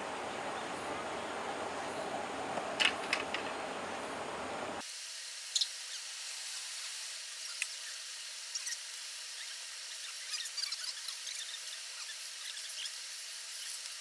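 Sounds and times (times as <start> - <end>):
river water running: 0.0 - 4.8.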